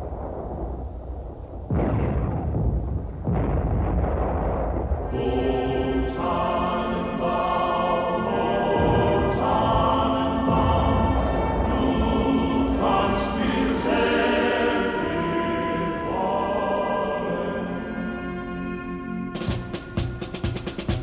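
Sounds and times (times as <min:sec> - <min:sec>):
booming explosions: 0:00.0 - 0:16.2
choir singing sustained chords: 0:05.1 - 0:20.2.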